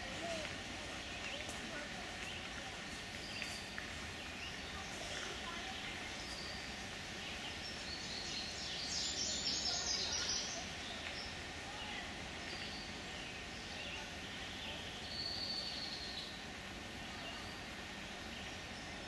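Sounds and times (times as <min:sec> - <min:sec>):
distant voices: 0:00.0 - 0:19.0
woodland ambience: 0:00.0 - 0:19.0.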